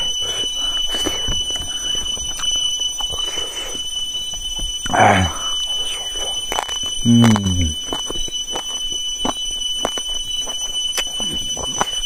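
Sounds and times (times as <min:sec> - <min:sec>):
high-pitched whine: 0:00.0 - 0:12.0.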